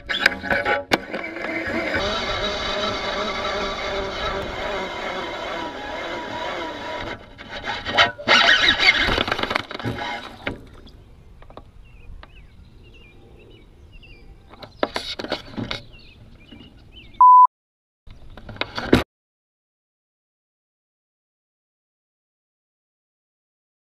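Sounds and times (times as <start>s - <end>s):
short electronic beep: 17.2s - 17.5s.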